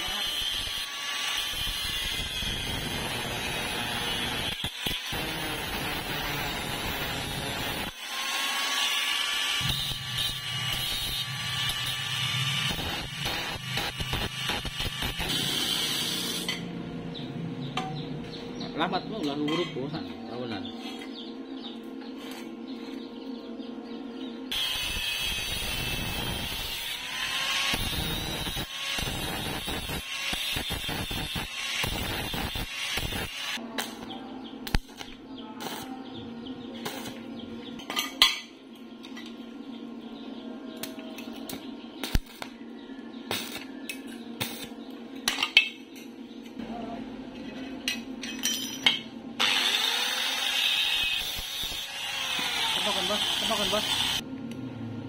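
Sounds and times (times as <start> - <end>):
angle grinder cutting metal: 0.0 - 16.7, 24.5 - 33.6, 49.4 - 54.2.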